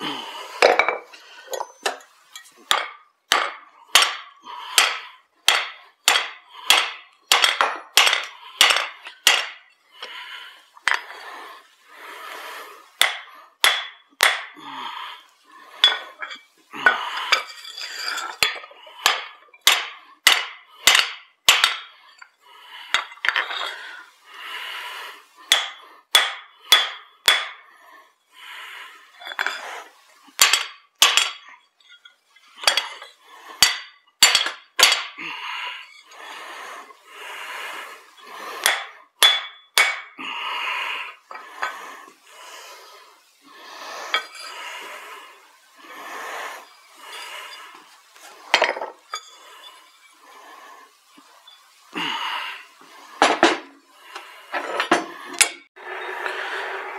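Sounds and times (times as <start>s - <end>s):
hammer striking steel on anvil: 2.7s - 9.6s, 13.0s - 14.6s, 18.4s - 21.9s, 25.5s - 27.6s, 30.4s - 31.4s, 33.6s - 35.2s, 38.6s - 40.1s.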